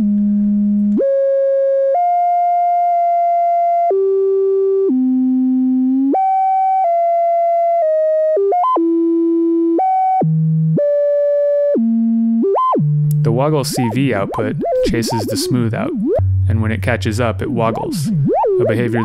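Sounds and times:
synthesizer tone gliding in pitch: 13.6s - 16.5s, 17.7s - 19.0s.

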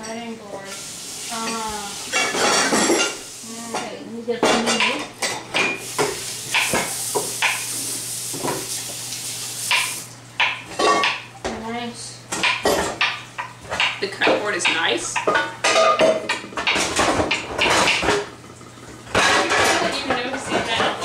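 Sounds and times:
dishes and utensils clattering: 0.0s - 8.8s, 9.7s - 11.6s, 12.3s - 18.3s, 19.0s - 21.0s.

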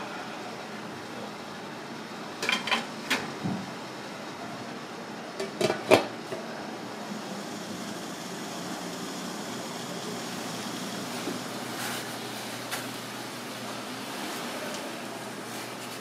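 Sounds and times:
plates and lid clanking on metal pot: 2.4s - 3.2s, 5.4s - 6.1s.

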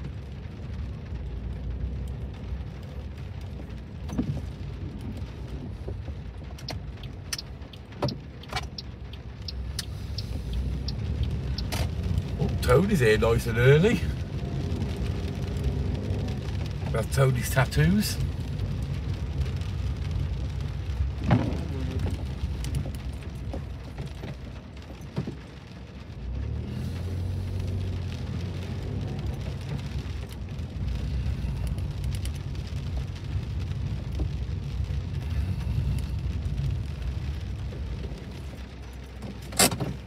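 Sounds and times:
car engine and tyres rumbling: 0.0s - 40.0s
rain hitting windscreen: 0.0s - 40.0s
faint clicks: 5.9s - 12.6s.

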